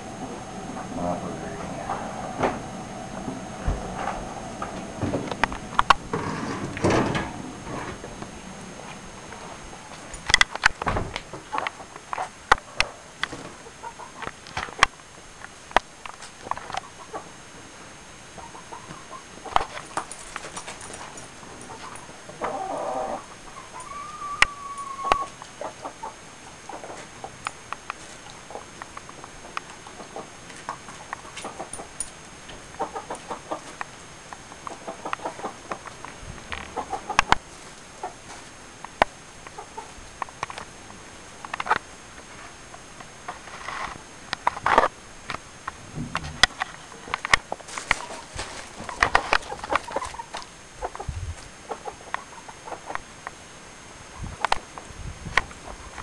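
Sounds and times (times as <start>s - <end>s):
chickens clucking: 0.0s - 10.1s, 11.4s - 14.2s, 18.4s - 19.8s, 21.6s - 27.4s, 28.3s - 33.9s, 34.6s - 38.4s, 39.5s - 40.0s, 46.9s - 53.0s.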